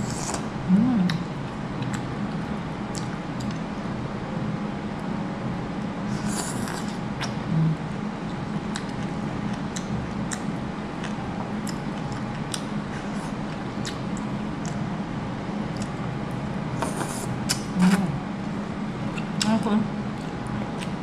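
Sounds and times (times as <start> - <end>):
low hum: 0.0 - 21.0
chewing smacks: 8.7 - 14.8, 20.1 - 21.0.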